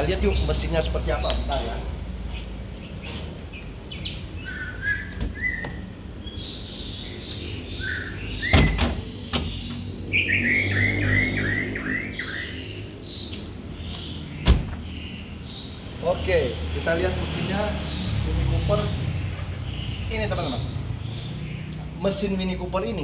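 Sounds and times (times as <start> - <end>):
birds chirping: 0.0 - 23.0.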